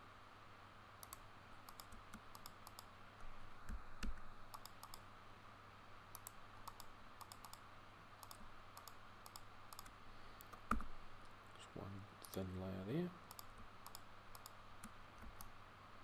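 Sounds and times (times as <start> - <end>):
low steady hum: 0.0 - 16.0
mouse and keyboard clicks: 1.0 - 2.9, 3.7 - 5.0, 6.1 - 7.6, 8.2 - 10.9, 13.3 - 15.5.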